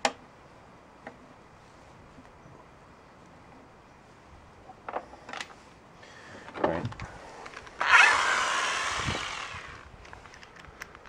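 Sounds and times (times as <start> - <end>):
power drill running: 7.8 - 9.9.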